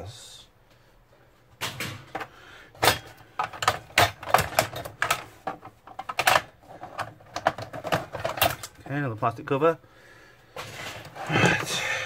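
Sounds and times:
plastic and metal parts clicking: 1.6 - 8.9.

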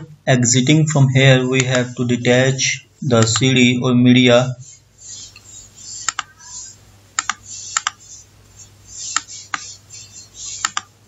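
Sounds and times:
computer mouse clicking: 5.3 - 6.4, 7.2 - 9.8, 10.4 - 10.9.

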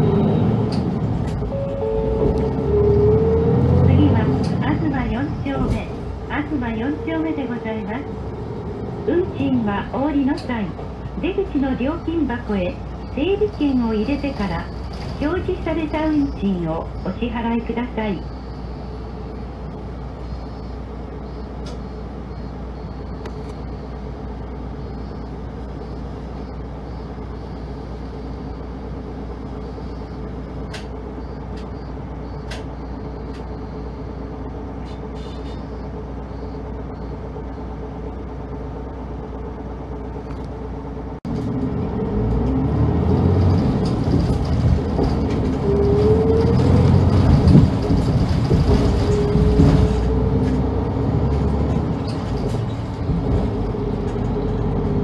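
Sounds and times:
bus engine idling: 0.0 - 55.0
bus engine under way: 0.0 - 55.0
rising whine: 0.1 - 4.0.

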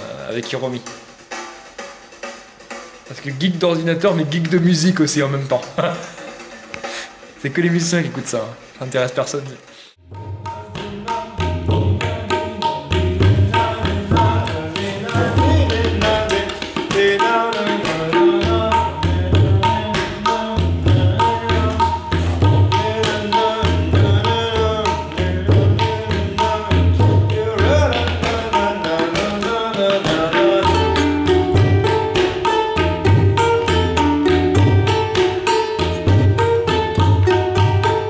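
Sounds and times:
tabla strokes: 0.0 - 8.8, 9.7 - 38.0.

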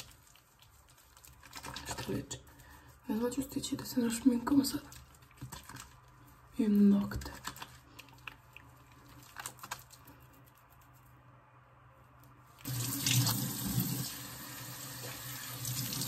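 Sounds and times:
tap water running into sink: 12.6 - 16.0.

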